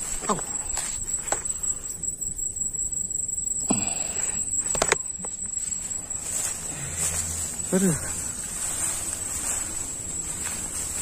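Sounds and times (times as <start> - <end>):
insects trilling: 0.0 - 11.0
grass rustling: 4.6 - 11.0.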